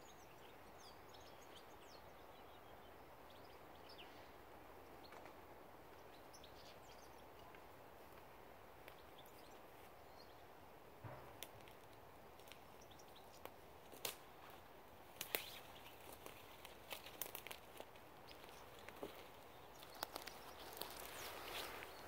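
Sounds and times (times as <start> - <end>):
soft steady hiss: 0.0 - 22.0
dry leaves crackling: 11.4 - 22.0.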